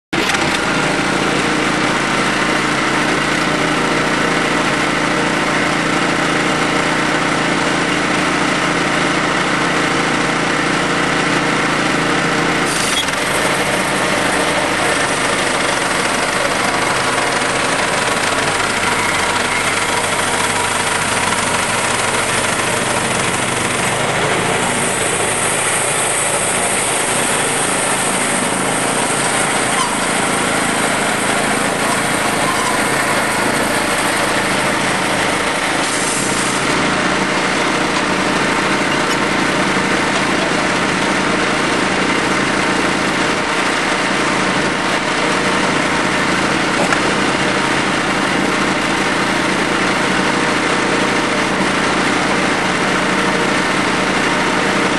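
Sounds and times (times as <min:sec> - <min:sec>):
band sawmill engine running: 0:00.1 - 0:54.9
saw blade hiss: 0:12.6 - 0:36.8.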